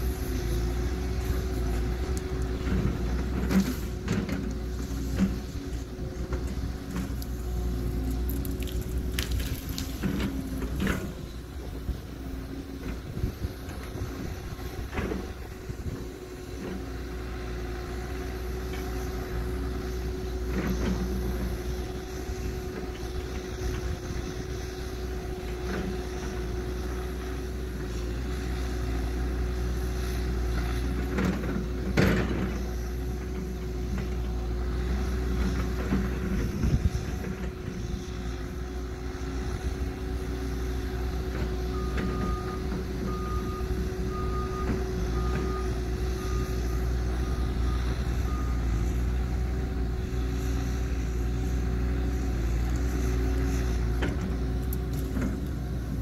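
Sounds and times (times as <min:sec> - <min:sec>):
excavator diesel engine humming: 0:00.0 - 0:56.0
wood cracking and snapping: 0:08.1 - 0:10.1.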